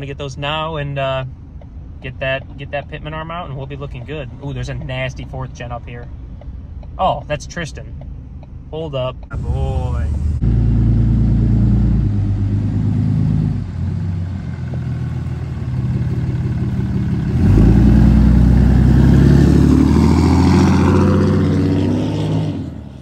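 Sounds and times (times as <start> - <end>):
pickup truck engine accelerating: 9.3 - 23.0.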